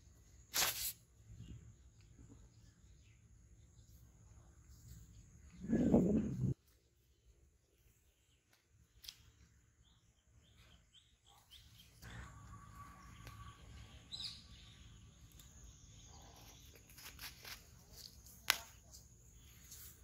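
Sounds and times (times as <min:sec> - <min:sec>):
small bird chirping: 0:01.3 - 0:20.0.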